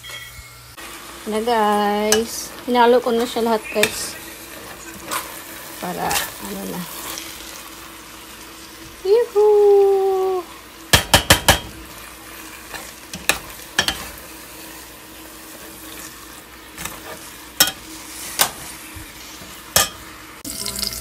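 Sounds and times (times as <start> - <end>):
faint sizzle: 0.0 - 21.0
utensil scraping metal pot: 15.4 - 20.7
utensil clinking on pot: 19.7 - 20.0.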